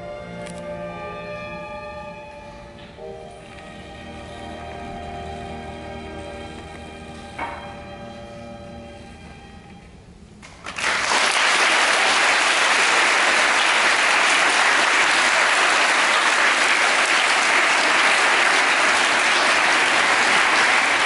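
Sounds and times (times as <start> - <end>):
large crowd applauding: 10.4 - 21.0.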